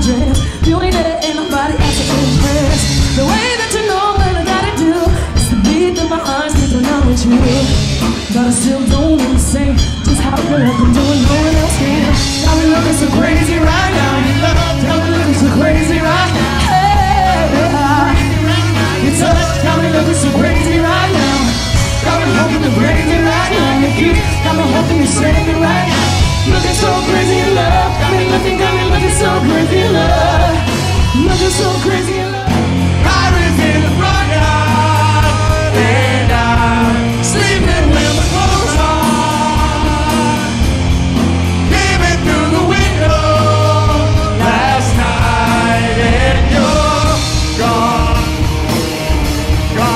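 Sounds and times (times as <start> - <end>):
woman singing: 0.0 - 32.3
live rock band playing: 0.0 - 49.9.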